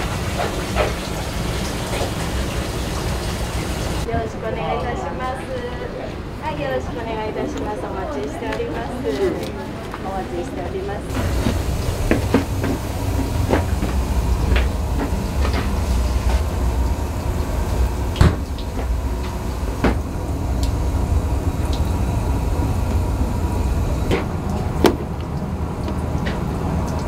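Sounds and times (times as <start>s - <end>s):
steady low rumble: 11.1s - 27.0s.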